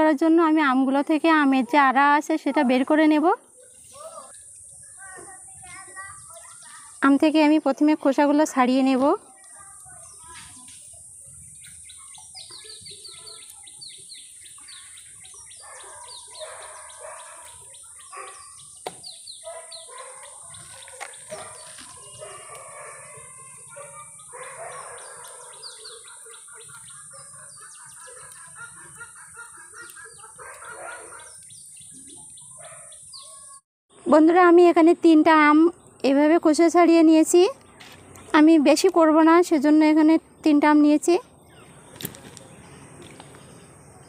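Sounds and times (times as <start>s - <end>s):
small birds chirping: 2.4s - 44.0s
chickens clucking: 23.7s - 31.5s.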